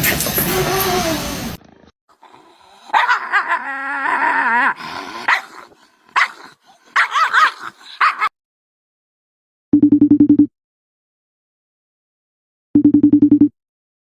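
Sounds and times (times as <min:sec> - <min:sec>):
dog growling: 0:00.5 - 0:08.3
dog barking: 0:02.9 - 0:03.2, 0:05.3 - 0:08.3.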